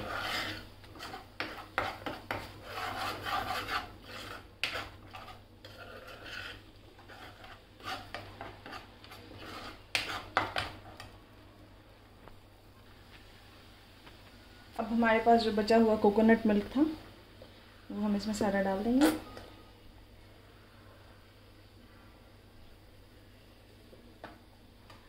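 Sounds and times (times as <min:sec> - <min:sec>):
spoon scraping paste in a wok: 0:00.0 - 0:11.2.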